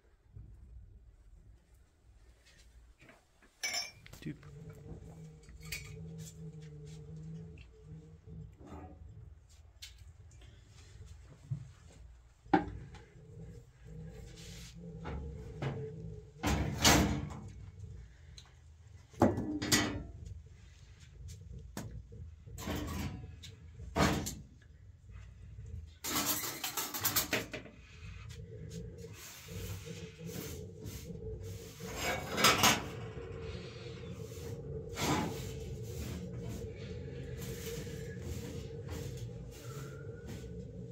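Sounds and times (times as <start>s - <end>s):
pots and pans clattering: 19.2s - 20.1s, 26.0s - 27.7s, 31.7s - 33.0s.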